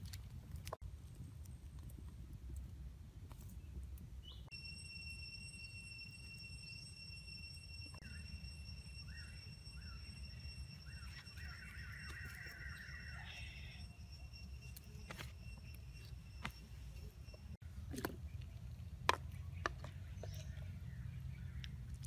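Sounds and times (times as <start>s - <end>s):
steady high-pitched tone: 4.5s - 17.6s
birds chirping: 8.0s - 14.2s, 14.8s - 22.0s.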